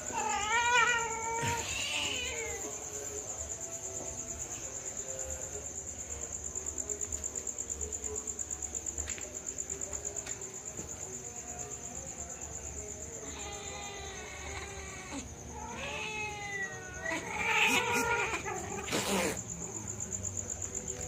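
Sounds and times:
cat meowing: 0.0s - 2.7s, 13.2s - 19.3s
crickets chirring: 0.0s - 21.0s.

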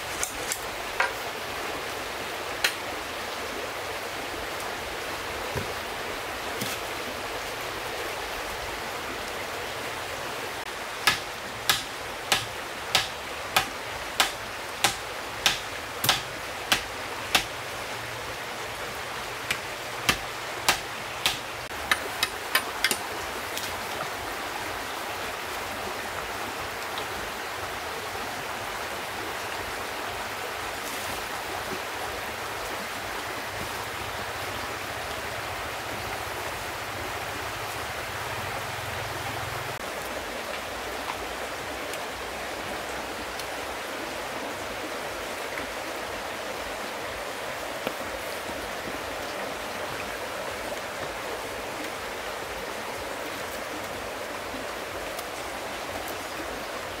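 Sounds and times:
stream rushing: 0.0s - 57.0s
hand tool chopping wood: 11.0s - 17.5s, 19.5s - 23.0s.

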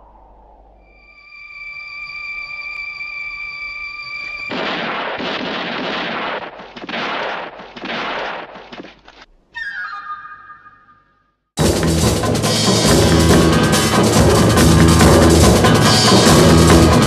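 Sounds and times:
high ringing tone: 0.8s - 4.5s, 9.6s - 11.4s
rough gunfire-like blasts: 4.5s - 9.1s.

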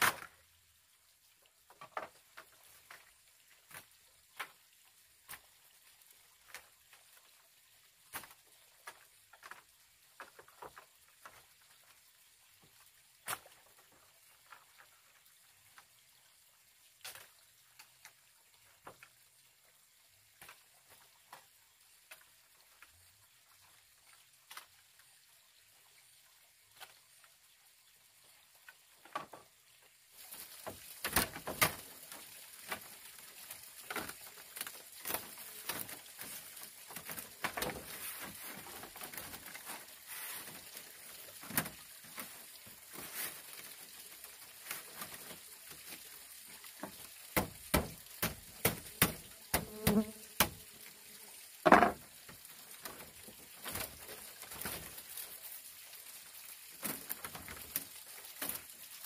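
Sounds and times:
bamboo strips clicking and tapping: 1.7s - 4.6s, 30.3s - 39.9s, 46.7s - 50.6s
dry bamboo strips rustling: 30.1s - 49.6s, 51.6s - 59.0s.

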